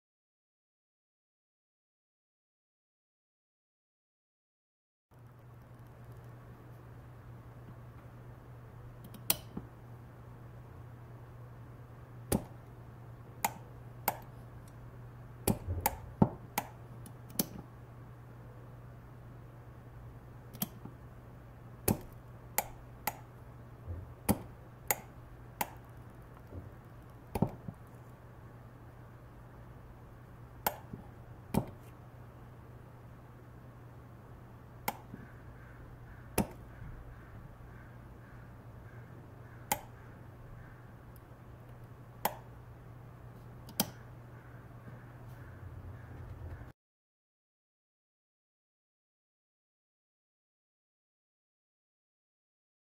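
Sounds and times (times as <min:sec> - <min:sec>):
sharp metallic clicks: 0:13.4 - 0:14.8, 0:21.9 - 0:23.4, 0:30.6 - 0:31.7, 0:39.7 - 0:40.0.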